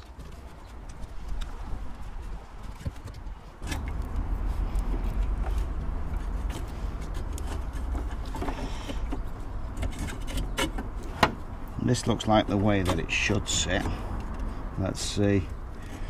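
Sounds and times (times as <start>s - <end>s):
low engine rumble: 0.0s - 16.0s
fuel filter clicks and knocks: 5.0s - 14.5s.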